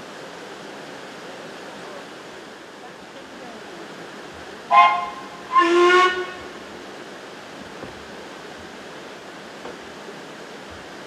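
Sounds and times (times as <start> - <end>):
steady steam hiss: 0.0 - 11.0
steam locomotive whistle: 4.7 - 6.6.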